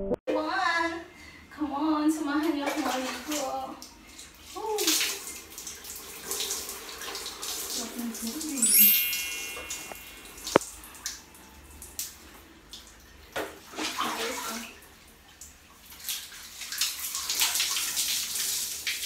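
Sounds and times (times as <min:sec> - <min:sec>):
water splashing onto tiled floor: 0:02.5 - 0:08.6, 0:11.8 - 0:19.0.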